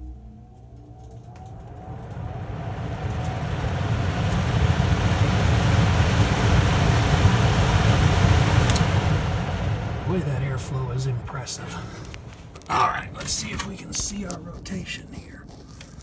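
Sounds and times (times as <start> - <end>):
furnace blower rushing air: 1.6 - 12.7.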